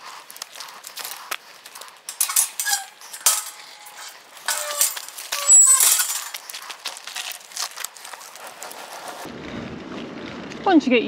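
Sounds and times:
metal gate clanking: 2.1s - 6.5s.

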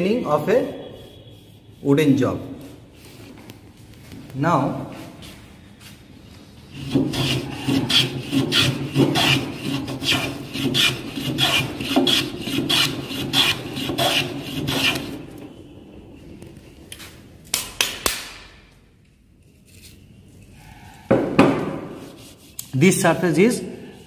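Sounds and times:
hand tool strokes on wood: 6.7s - 15.2s.

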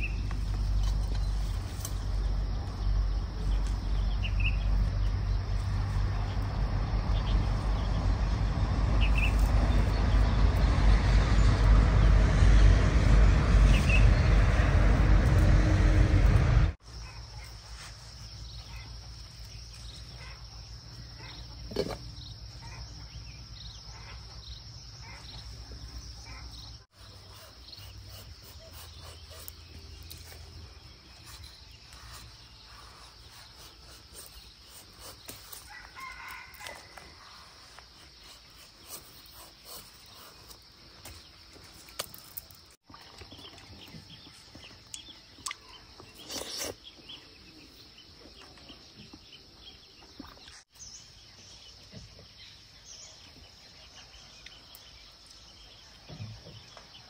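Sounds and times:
outdoor background noise: 0.0s - 57.0s
rooster crowing: 35.7s - 37.3s
biting into fruit: 44.9s - 47.0s.

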